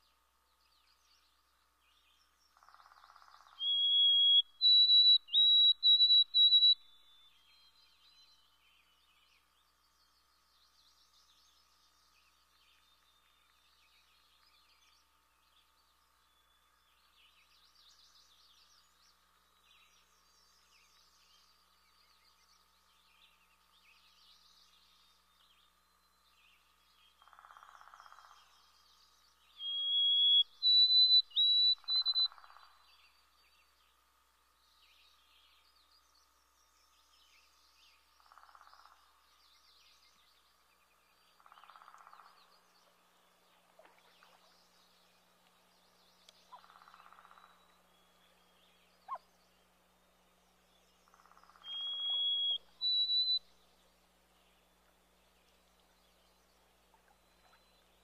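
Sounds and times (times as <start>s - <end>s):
faint bird chirping: 0.0s - 58.0s
faint steady drone: 0.0s - 58.0s
songbird whistled song: 0.7s - 9.4s, 29.2s - 33.6s, 43.8s - 49.6s, 50.7s - 58.0s.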